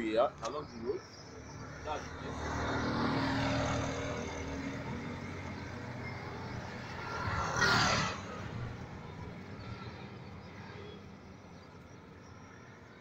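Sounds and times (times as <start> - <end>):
faint distant traffic: 0.0 - 13.0
vehicle passing by: 1.5 - 11.2.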